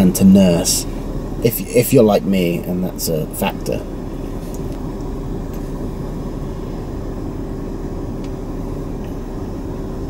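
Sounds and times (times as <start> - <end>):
car engine hum inside cabin: 0.0 - 10.0.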